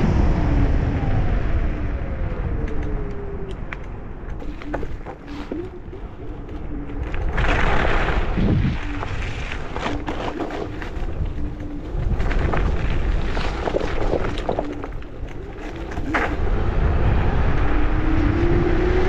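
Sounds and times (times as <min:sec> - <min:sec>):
wind and tyres rumbling: 0:00.0 - 0:19.0
scooter rattling over bumps: 0:04.3 - 0:17.0.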